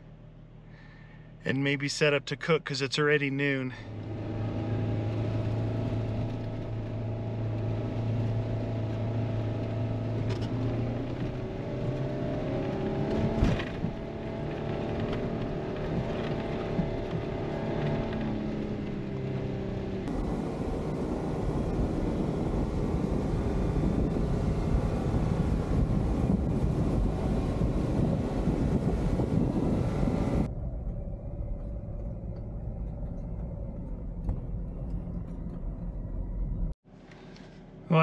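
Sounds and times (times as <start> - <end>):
car engine running: 0.0 - 38.0
wind noise: 20.1 - 35.9.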